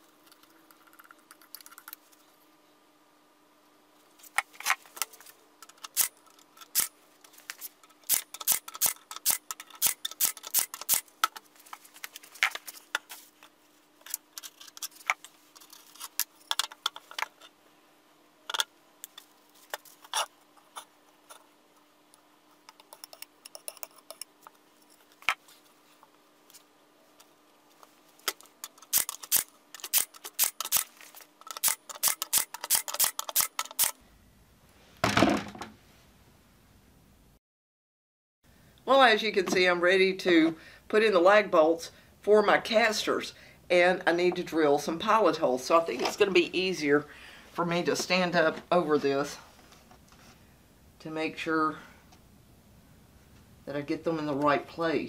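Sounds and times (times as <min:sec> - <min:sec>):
faint steady hum: 0:00.0 - 0:37.4, 0:38.5 - 0:55.0
tools set down on plywood: 0:35.0 - 0:35.8.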